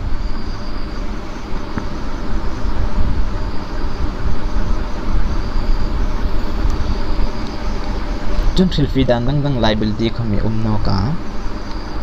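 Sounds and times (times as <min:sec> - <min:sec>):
low rumbling background noise: 0:00.0 - 0:12.0.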